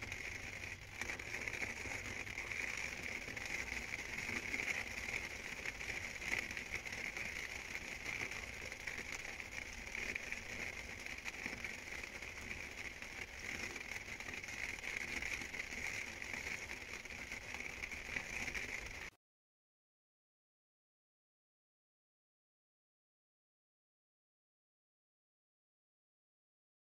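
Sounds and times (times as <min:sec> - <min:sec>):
rain pattering: 0:00.0 - 0:19.1.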